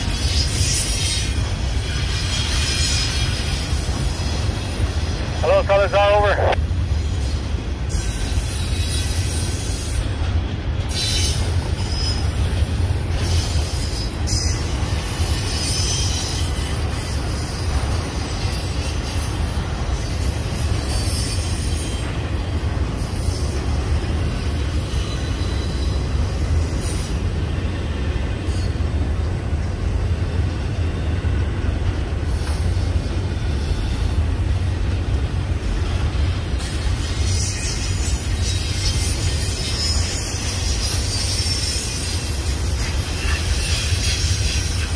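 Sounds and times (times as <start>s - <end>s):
freight train rumbling on rails: 0.0s - 44.9s.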